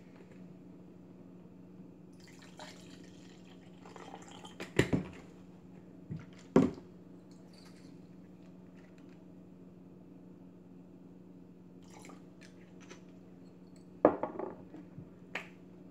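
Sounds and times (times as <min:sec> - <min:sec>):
juice pouring into cup: 0:02.2 - 0:04.8, 0:11.8 - 0:12.6
bottles set down on counter: 0:14.0 - 0:14.7.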